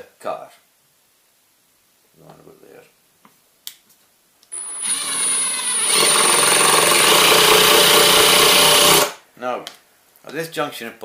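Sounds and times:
impact driver whining: 0:04.5 - 0:09.2.

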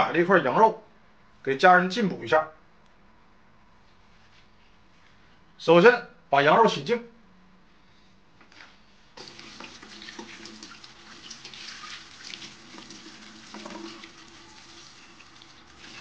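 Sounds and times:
tap water running into bowl: 0:09.2 - 0:16.0
water splashing and sloshing: 0:09.2 - 0:16.0.

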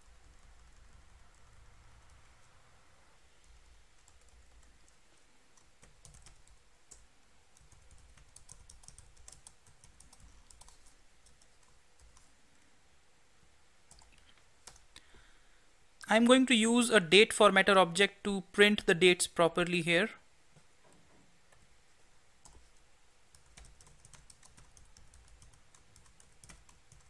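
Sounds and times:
typing on computer keyboard: 0:03.4 - 0:05.0, 0:05.6 - 0:12.3, 0:13.9 - 0:14.9, 0:22.4 - 0:27.0.

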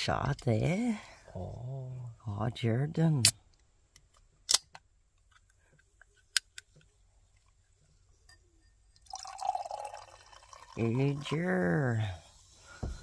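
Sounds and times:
fizzy drink pouring into glass: 0:09.0 - 0:11.4.

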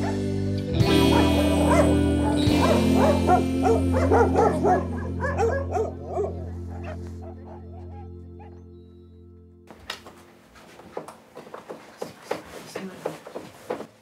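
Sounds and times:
dogs barking: 0:00.0 - 0:00.3, 0:00.9 - 0:08.7
music of held chords: 0:00.0 - 0:10.4.

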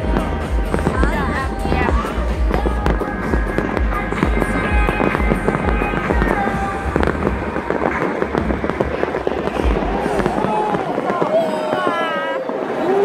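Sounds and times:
music with low beat: 0:00.0 - 0:10.3
fireworks banging: 0:00.0 - 0:13.0.

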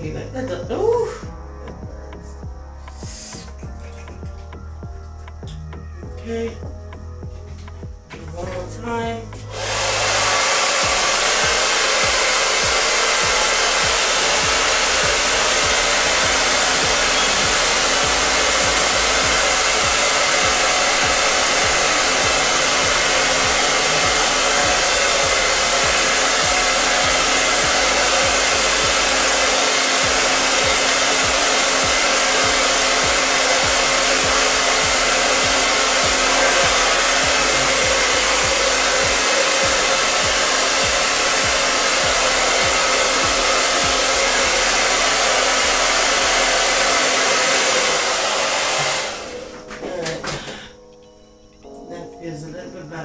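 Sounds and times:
hair dryer blowing: 0:09.4 - 0:50.8.

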